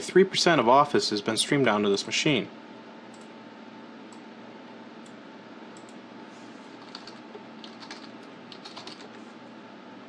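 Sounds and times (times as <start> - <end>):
keyboard typing: 6.8 - 9.2.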